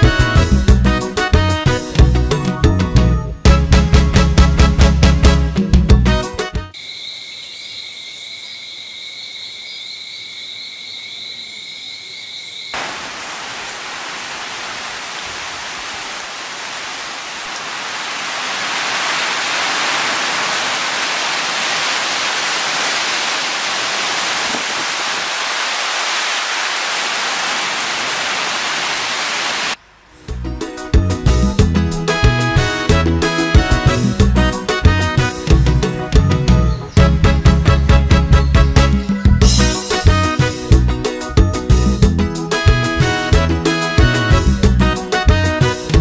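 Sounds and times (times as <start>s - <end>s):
crickets trilling: 6.7s - 14.8s
heavy rain pouring: 12.8s - 30.0s.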